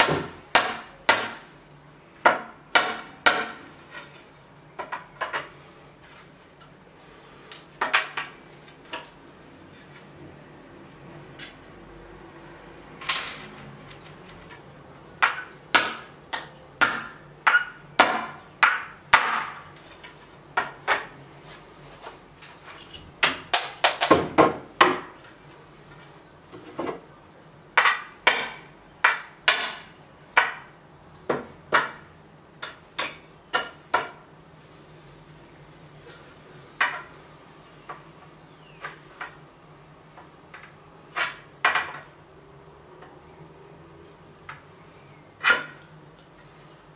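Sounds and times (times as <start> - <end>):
hammer striking nails in wood: 0.0 - 1.4, 2.2 - 3.6, 15.2 - 19.6, 27.8 - 30.7.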